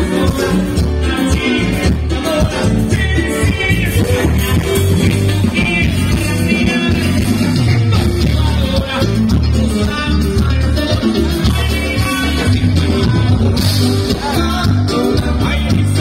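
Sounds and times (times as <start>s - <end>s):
heavy bass line: 0.0s - 16.0s
person singing: 0.0s - 16.0s.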